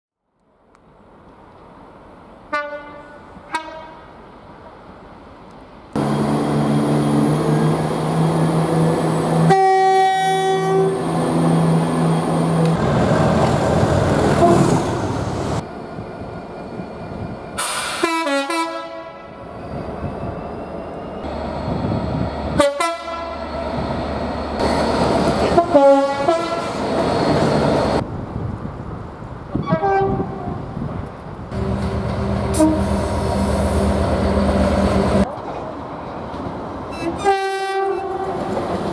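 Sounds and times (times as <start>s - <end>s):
two-tone train horn blast: 2.5s - 4.1s, 9.4s - 11.1s, 14.4s - 14.9s, 18.0s - 19.3s, 22.6s - 23.5s, 25.4s - 26.8s, 29.6s - 30.5s, 31.5s - 33.2s, 36.9s - 38.4s
passing trains sounding horns: 2.5s - 4.3s, 6.0s - 15.6s, 17.6s - 19.5s, 21.2s - 28.0s, 29.6s - 30.6s, 31.5s - 35.3s, 36.9s - 38.9s
diesel train engine running: 6.0s - 18.4s, 20.7s - 28.0s, 31.5s - 36.8s.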